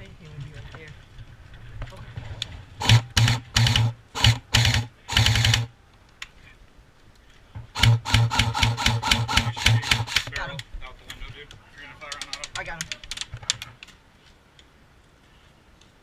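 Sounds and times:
airsoft rifle firing bursts: 2.8 - 5.7, 7.7 - 10.4.

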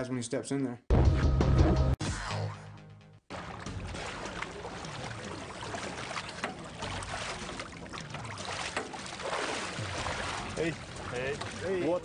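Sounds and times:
water lapping around boat ladder: 3.3 - 12.0.

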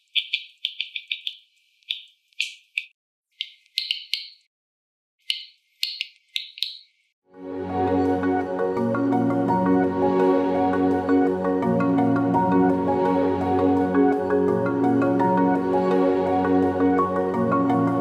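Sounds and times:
sharp plant clicks like popping: 0.0 - 4.5, 5.2 - 6.9.

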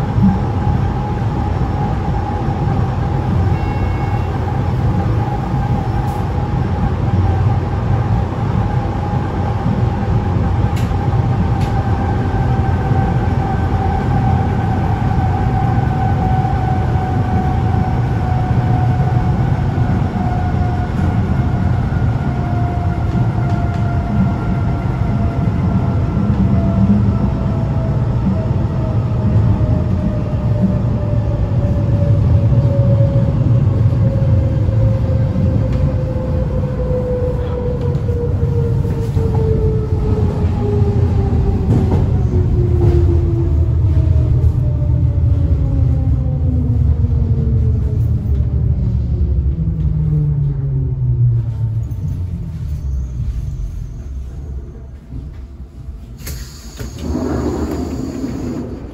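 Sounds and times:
train wheels rumbling: 0.0 - 58.9
train whine falling in pitch: 56.2 - 58.9.

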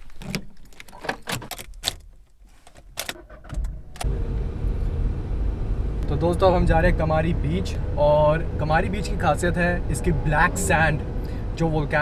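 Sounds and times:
car driving from inside cabin: 4.0 - 11.6.

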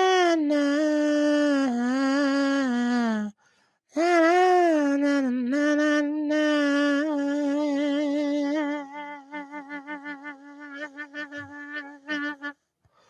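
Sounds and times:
man humming held notes: 4.0 - 12.5.

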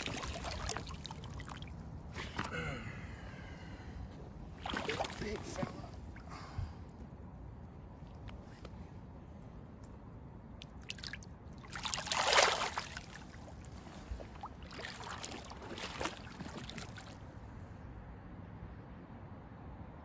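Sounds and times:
fish splashing in shallow water: 0.0 - 2.5, 4.5 - 7.0, 10.6 - 17.4.

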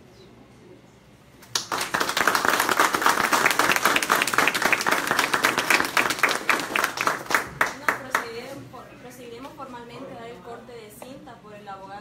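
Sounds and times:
people applauding: 1.4 - 8.5.

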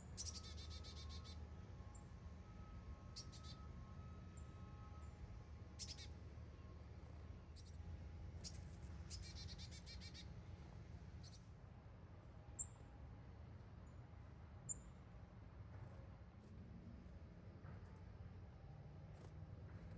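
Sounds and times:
songbird chirps: 0.1 - 2.1, 5.8 - 7.8, 8.4 - 10.4.

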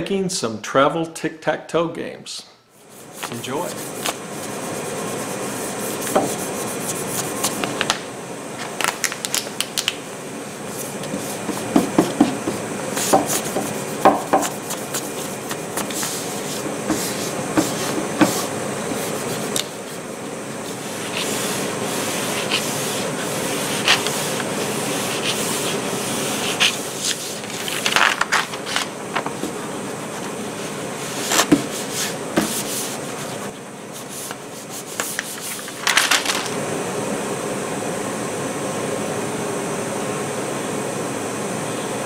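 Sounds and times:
hands rubbing wood: 2.8 - 7.8, 10.7 - 35.8
crinkling plastic and paper: 8.6 - 10.0, 26.5 - 29.4, 35.0 - 36.5.

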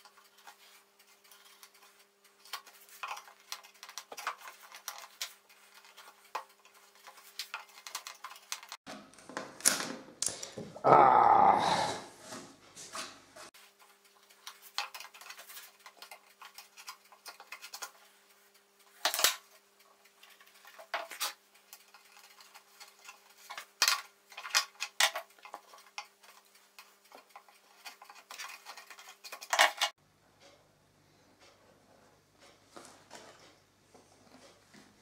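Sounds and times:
wooden pieces clicking and tapping: 0.0 - 10.8, 13.8 - 29.9.

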